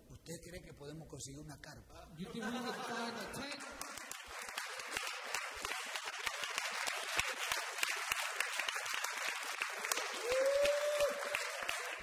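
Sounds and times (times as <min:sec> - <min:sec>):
congregation applauding: 0:03.4 - 0:12.0.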